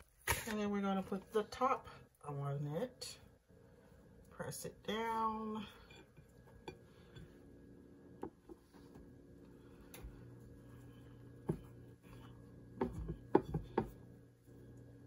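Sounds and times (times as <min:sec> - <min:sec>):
faint low hum: 0:00.0 - 0:15.0
plate knocking and tapping: 0:12.8 - 0:14.0.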